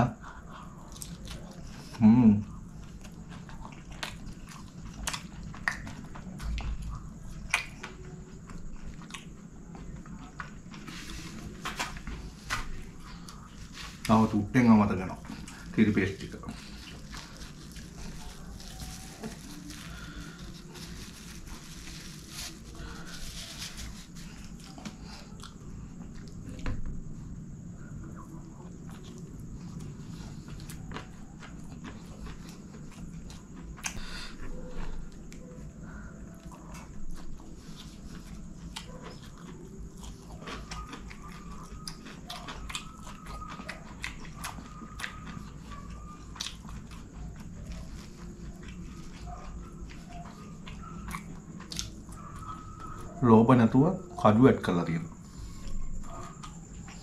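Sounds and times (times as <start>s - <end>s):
person chewing: 0.2s - 26.7s, 28.0s - 53.1s
plastic bag crinkling: 16.9s - 24.6s.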